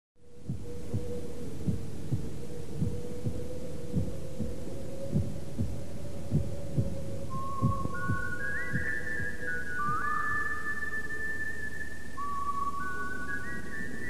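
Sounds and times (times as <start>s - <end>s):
soft thudding pulses: 0.4s - 10.0s
whistled melody: 0.5s - 14.0s.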